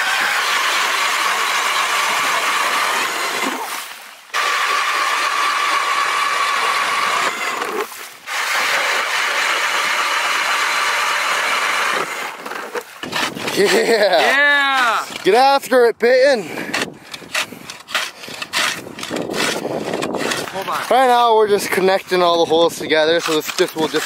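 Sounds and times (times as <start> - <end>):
ice auger motor whine: 0.0 - 3.7, 4.4 - 13.4
drill bit grinding ice: 0.0 - 15.5, 16.6 - 24.0.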